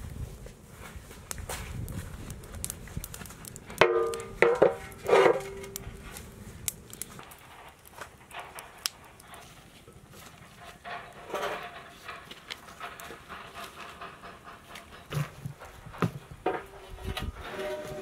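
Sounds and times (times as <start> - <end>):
burning wood clicks: 0.4 - 17.4
metal pot clanging on stand: 3.8 - 5.8.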